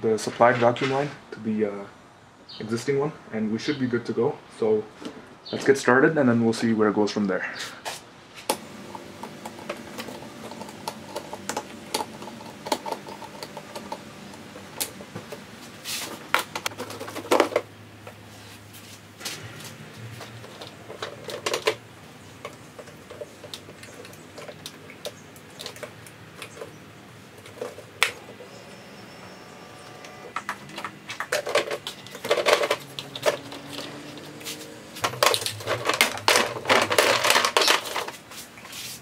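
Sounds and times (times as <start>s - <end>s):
faint steady hum: 8.4s - 33.4s
tools clicking on plastic parts: 30.3s - 34.3s, 35.0s - 38.2s.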